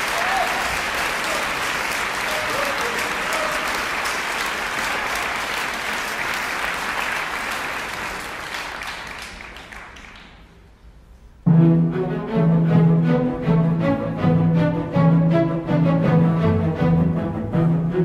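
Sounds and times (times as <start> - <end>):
audience applauding: 0.0 - 10.6
orchestra playing low strings: 11.4 - 18.0.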